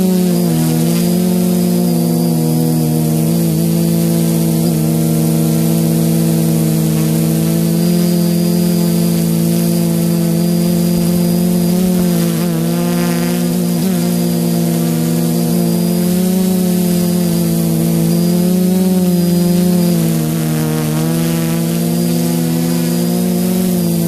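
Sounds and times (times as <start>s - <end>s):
quadcopter motors buzzing: 0.0s - 24.0s.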